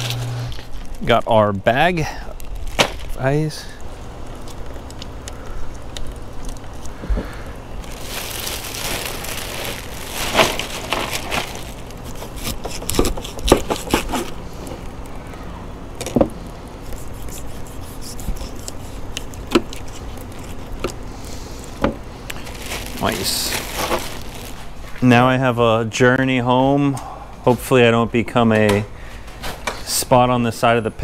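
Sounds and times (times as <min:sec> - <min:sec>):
plastic bag rustling: 0:00.0 - 0:01.1, 0:02.3 - 0:03.7, 0:06.2 - 0:14.9, 0:17.0 - 0:25.3.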